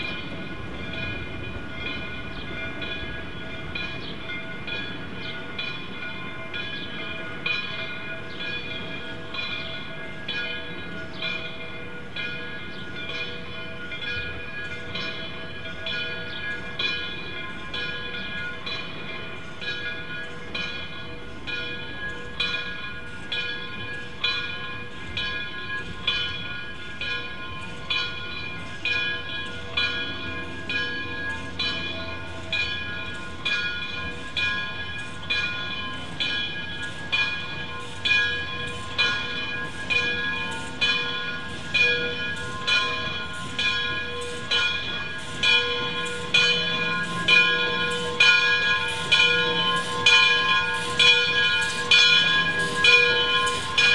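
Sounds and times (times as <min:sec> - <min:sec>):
locomotive bell ringing: 0:00.0 - 0:53.9
low train rumble: 0:00.0 - 0:53.9.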